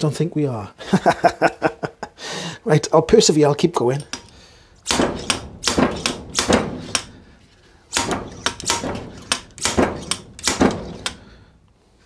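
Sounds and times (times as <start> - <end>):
slide hammer metal knocks: 4.9 - 7.2, 7.9 - 11.3.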